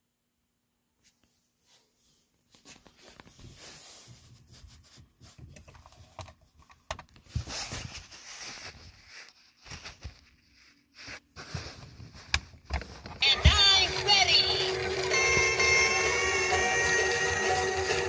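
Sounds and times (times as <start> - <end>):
handling rustling: 1.7 - 14.3.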